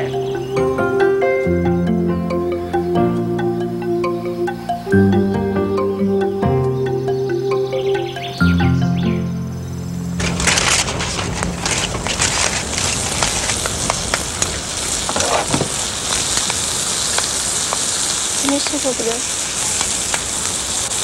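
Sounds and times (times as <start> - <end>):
sharp pops and crackles: 10.2 - 21.0
food sizzling in frying pan: 11.5 - 21.0.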